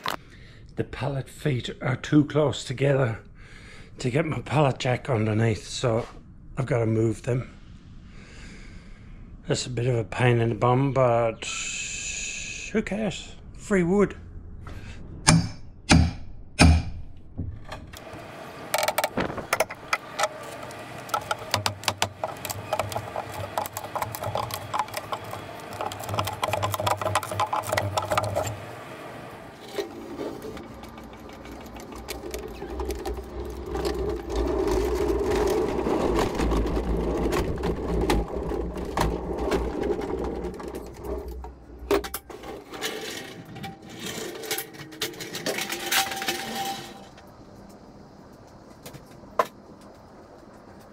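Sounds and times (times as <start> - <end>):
pallet jack wheels rumbling on concrete: 17.4 - 50.9.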